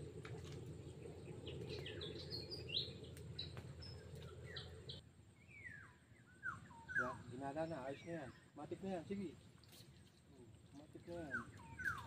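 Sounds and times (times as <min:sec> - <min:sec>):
low background rumble: 0:00.0 - 0:06.0
songbirds chirping: 0:00.0 - 0:12.0.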